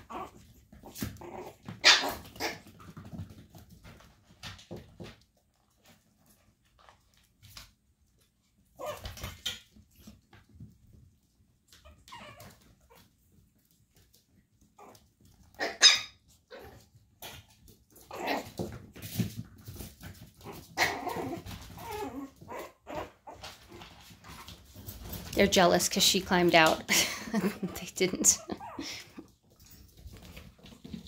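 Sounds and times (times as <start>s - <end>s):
puppies yipping and whimpering: 11.8s - 13.2s, 14.8s - 16.8s, 20.7s - 23.6s, 28.4s - 29.2s.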